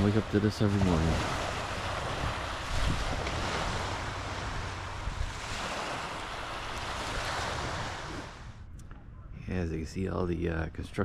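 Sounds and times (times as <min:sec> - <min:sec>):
small waves washing onto beach: 0:00.0 - 0:08.6
wind buffeting microphone: 0:00.0 - 0:11.0.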